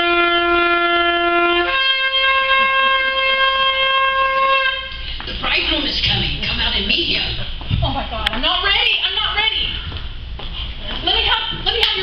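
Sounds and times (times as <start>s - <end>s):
two-note horn blast: 0.0s - 5.2s.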